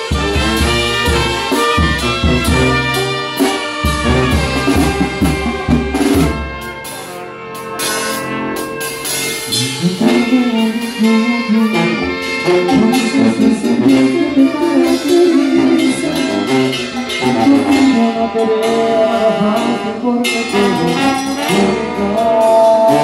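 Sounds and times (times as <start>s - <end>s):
snare and tom drums: 0.0s - 6.7s
sousaphone bass line: 0.0s - 23.0s
trumpets playing melody: 0.0s - 23.0s.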